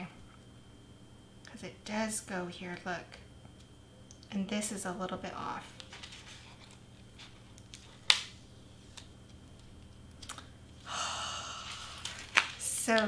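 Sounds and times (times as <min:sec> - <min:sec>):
paper rustle: 0:05.8 - 0:08.1.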